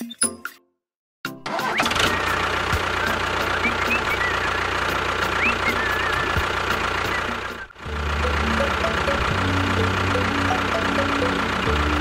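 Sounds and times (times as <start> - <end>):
tractor diesel engine idling: 1.5 - 12.0
rising and falling whistles: 1.7 - 4.7, 5.3 - 7.8.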